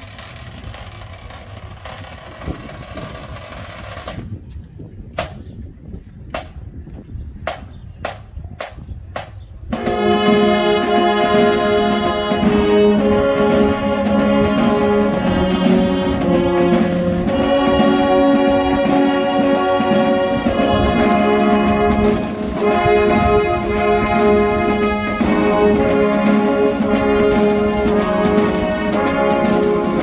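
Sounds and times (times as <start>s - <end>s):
brass band playing a hymn: 9.7s - 30.0s.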